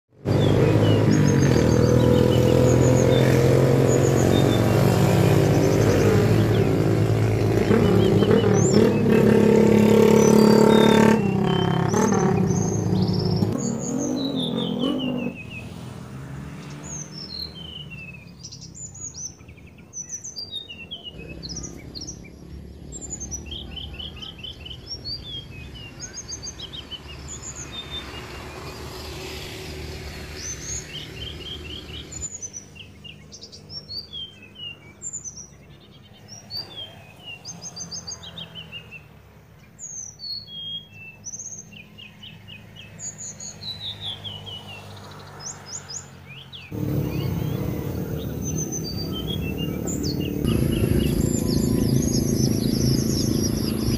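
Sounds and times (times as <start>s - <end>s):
nestlings begging chirps: 46.7s - 53.9s
low steady hum: 46.8s - 53.9s.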